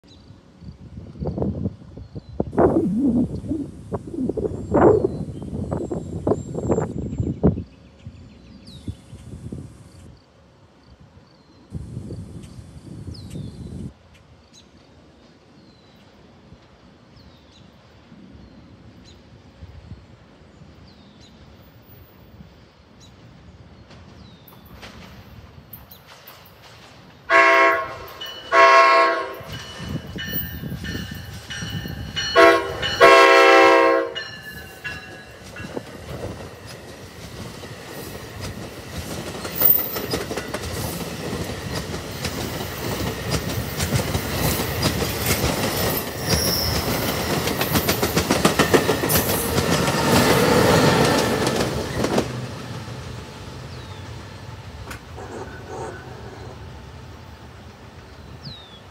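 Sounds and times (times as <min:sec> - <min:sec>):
train rumbling past: 0:00.1 - 0:58.9
train horn: 0:27.3 - 0:29.5, 0:32.2 - 0:34.4
wheels clicking over rail joints: 0:34.3 - 0:54.0.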